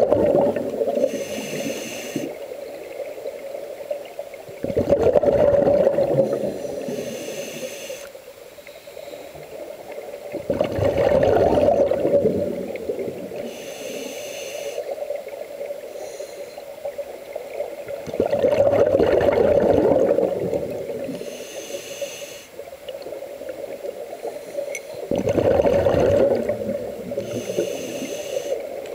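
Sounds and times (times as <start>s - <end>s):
exhaled bubbles rumbling: 0.0s - 1.1s, 4.4s - 6.6s, 9.5s - 13.5s, 17.0s - 21.2s, 25.0s - 27.7s
regulator inhale hiss: 0.8s - 2.6s, 6.2s - 9.6s, 13.3s - 15.1s, 15.8s - 16.8s, 21.0s - 22.8s, 24.2s - 25.1s, 27.2s - 28.8s.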